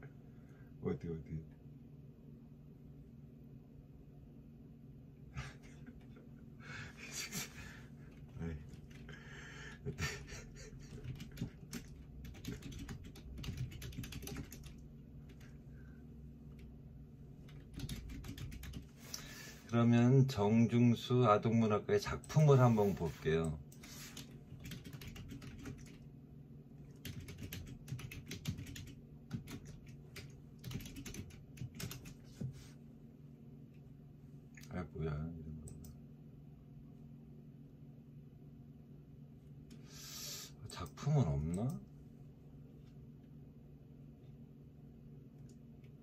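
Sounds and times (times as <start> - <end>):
faint low hum: 0.0 - 46.0
keyboard typing: 10.9 - 15.5, 17.4 - 18.9, 23.7 - 26.0, 26.9 - 32.2.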